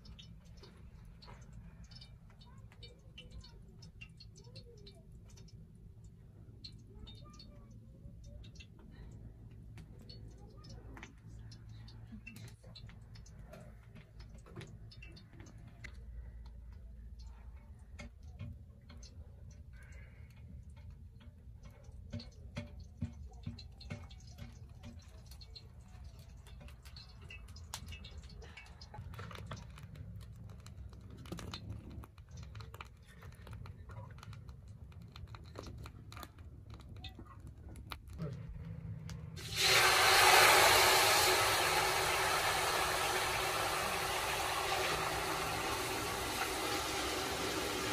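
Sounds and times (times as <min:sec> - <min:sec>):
wood fire crackling: 0:18.8 - 0:47.9.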